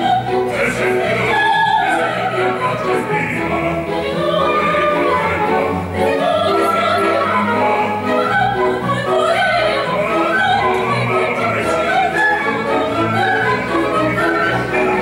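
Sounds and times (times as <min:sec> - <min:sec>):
operatic singing: 0:00.0 - 0:15.0
orchestra playing: 0:00.0 - 0:15.0.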